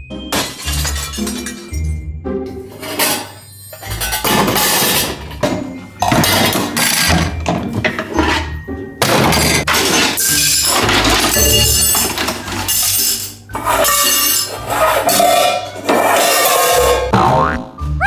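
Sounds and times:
background music: 0.0 - 18.0
plastic toy dishes clattering: 2.7 - 16.0.

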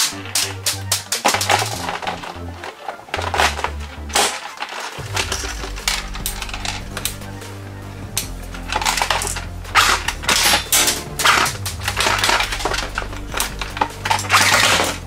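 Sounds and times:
plastic toy guns clattering in box: 0.0 - 5.5, 8.7 - 15.0.

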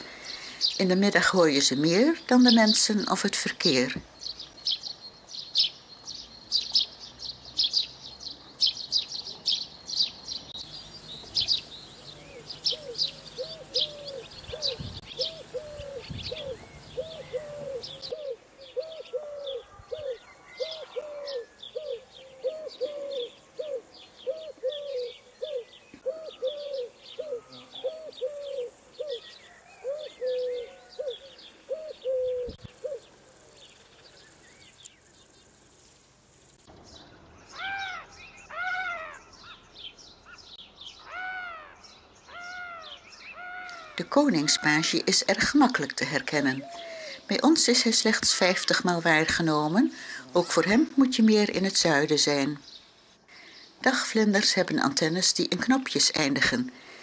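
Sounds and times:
sparrows chirping: 0.0 - 57.0
low repeated bird call: 4.2 - 35.6, 36.6 - 45.0.

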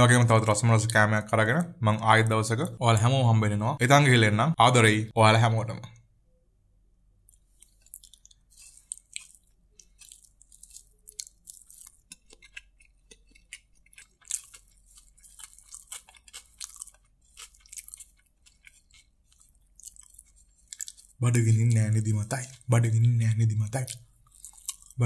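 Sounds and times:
man chewing with wet smacks: 7.2 - 25.0.

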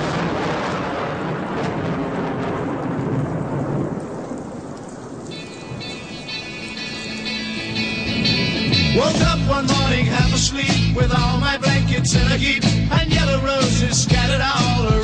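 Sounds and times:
low thunder rumbling: 0.0 - 12.5
heavy rain: 0.0 - 15.0
music: 5.3 - 15.0.

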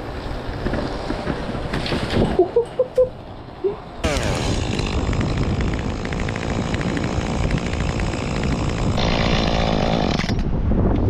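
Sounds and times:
chainsaw running: 4.0 - 10.4.

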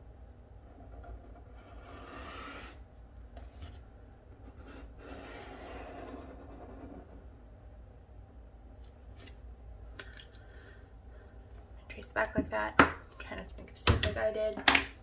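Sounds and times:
pen scratching on paper: 1.1 - 2.8, 4.4 - 7.2.

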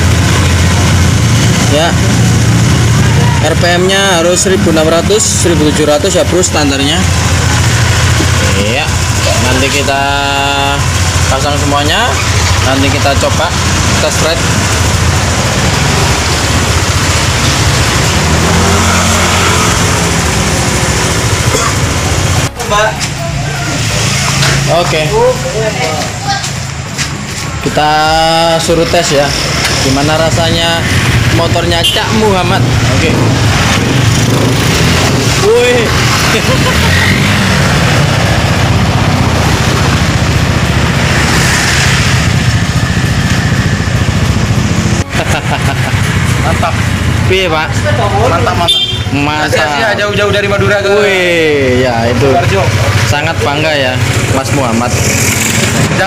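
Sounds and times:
scooter engine idling: 0.0 - 18.5, 20.0 - 27.0, 38.0 - 41.1, 42.3 - 55.8.

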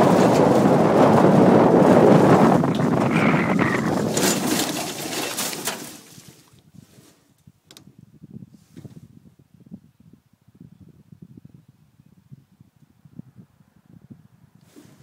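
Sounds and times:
wind rush: 0.0 - 5.2, 7.9 - 15.0
cart knocking on rough dirt: 0.0 - 6.5
cart rolling downhill: 0.0 - 6.6.

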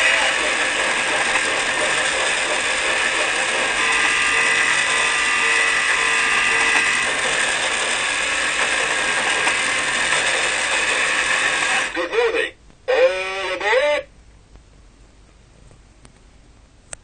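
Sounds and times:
steady higher tone: 0.0 - 12.0
toy train motor and gears: 0.0 - 12.0.

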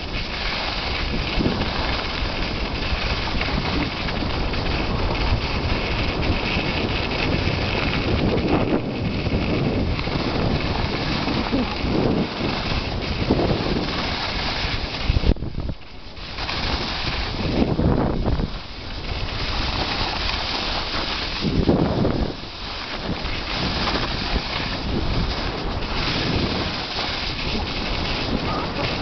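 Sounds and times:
wind rushing over microphone: 0.0 - 29.0.

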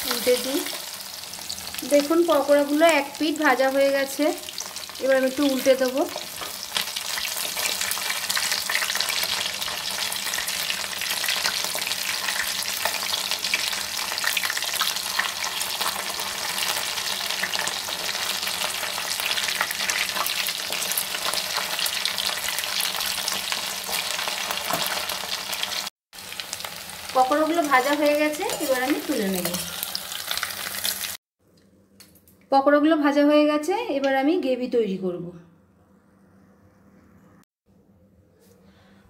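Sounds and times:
chicken deep-frying in hot oil: 0.0 - 31.2.

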